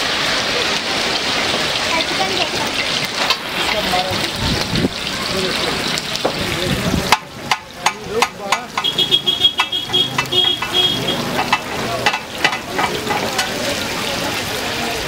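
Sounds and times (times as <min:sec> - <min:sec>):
fish sizzling in oil: 0:00.0 - 0:15.0
spatulas knocking and scraping pan: 0:07.0 - 0:13.6.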